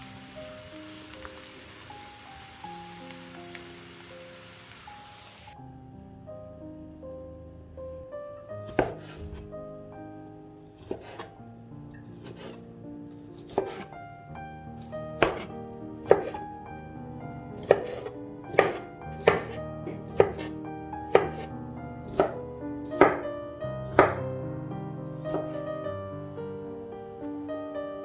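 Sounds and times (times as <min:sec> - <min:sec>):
soft background music: 0:00.0 - 0:28.0
knife chopping on wooden board: 0:08.7 - 0:09.4, 0:10.8 - 0:11.3, 0:12.2 - 0:12.6, 0:13.4 - 0:13.9, 0:15.2 - 0:16.4, 0:17.6 - 0:20.5, 0:21.1 - 0:21.5, 0:22.1 - 0:22.4, 0:23.0 - 0:23.2, 0:24.0 - 0:24.2.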